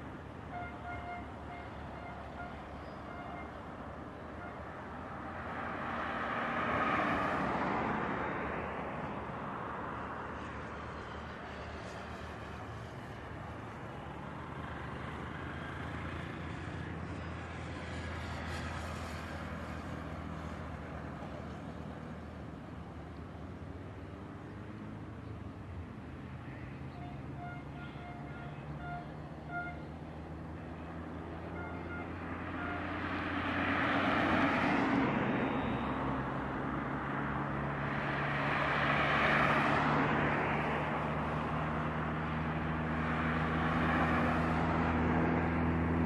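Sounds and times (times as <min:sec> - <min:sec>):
car driving past: 0:32.3 - 0:46.0.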